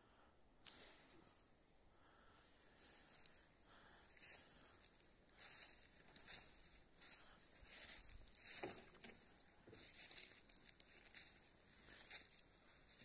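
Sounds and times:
footsteps crunching dry leaves: 0:04.0 - 0:13.0.

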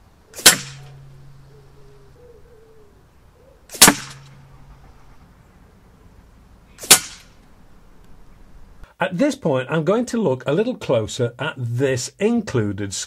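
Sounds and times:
low hum: 0:00.0 - 0:08.8
air rifle shots: 0:00.3 - 0:01.0, 0:03.7 - 0:04.4, 0:06.8 - 0:07.4.

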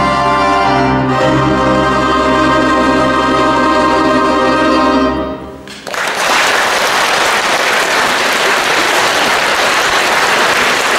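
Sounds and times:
orchestra with piano chord: 0:00.0 - 0:05.7
audience applause: 0:05.7 - 0:10.9.

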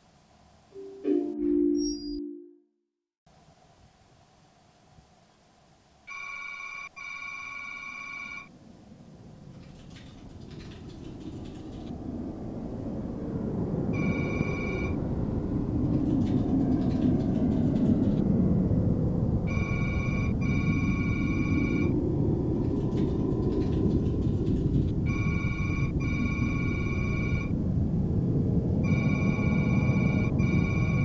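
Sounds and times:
electronic beeps: 0:01.4 - 0:02.6, 0:19.5 - 0:21.9, 0:25.1 - 0:27.5, 0:28.9 - 0:31.0
low rumbling drone: 0:10.4 - 0:31.0.

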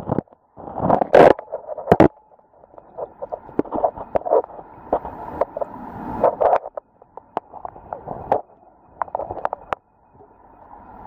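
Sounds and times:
muffled gurgling stream underwater: 0:00.0 - 0:11.0
sharp clicks and knocks: 0:06.3 - 0:09.8.

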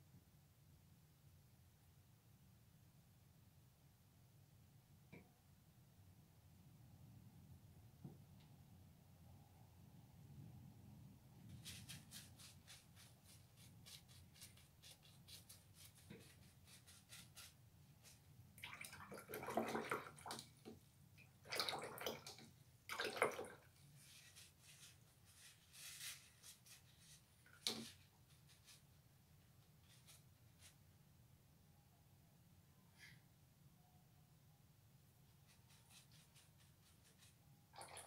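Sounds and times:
water sloshing in jar: 0:18.6 - 0:24.8, 0:37.7 - 0:38.0.

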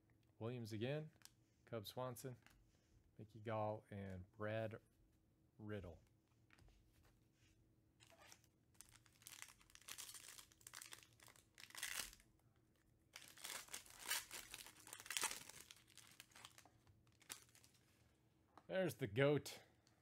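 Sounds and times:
foil wrapper crinkling and tearing: 0:08.0 - 0:12.3, 0:13.2 - 0:17.8.

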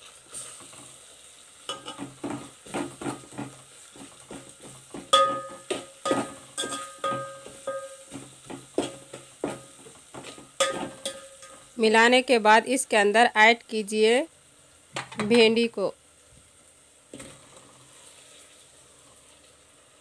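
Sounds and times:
masala sizzling in oil: 0:00.0 - 0:20.0
metal spoon scraping a pot: 0:01.7 - 0:02.2, 0:05.1 - 0:08.2.

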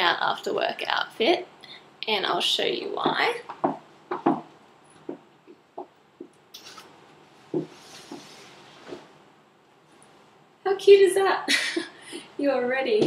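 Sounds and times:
light knocks and taps: 0:03.5 - 0:06.4
clothes rustling: 0:06.5 - 0:10.3.

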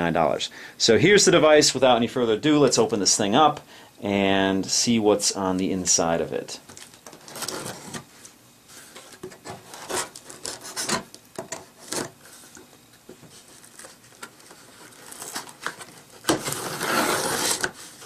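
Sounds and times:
hands scraping cardboard box: 0:08.8 - 0:11.1, 0:13.3 - 0:18.0
blade cutting tape: 0:16.2 - 0:17.8.

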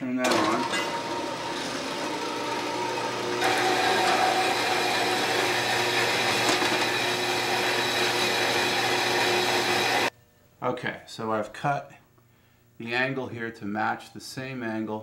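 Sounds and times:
band saw cutting metal pipe: 0:00.2 - 0:10.1
band saw motor hum: 0:00.2 - 0:10.1.

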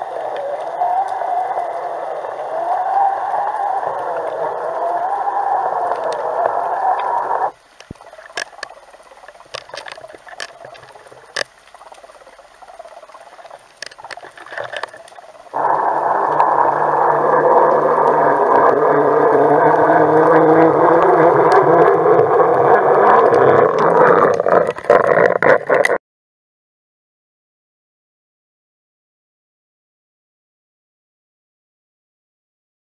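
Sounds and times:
underwater rushing rumble: 0:00.0 - 0:26.0
faint clicks and taps: 0:07.6 - 0:12.3.

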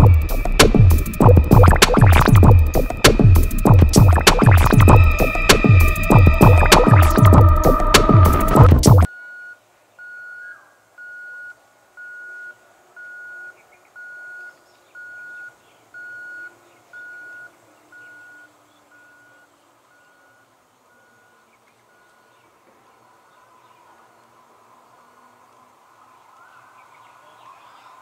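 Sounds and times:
electronic warning beeps: 0:00.0 - 0:10.4, 0:11.0 - 0:22.3.

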